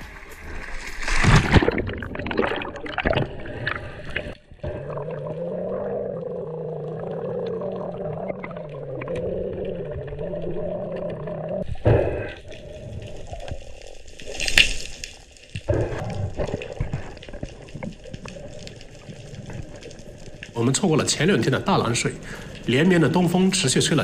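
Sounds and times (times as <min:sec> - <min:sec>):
water splashing: 0:00.0 - 0:06.2
low underwater hum: 0:00.0 - 0:24.0.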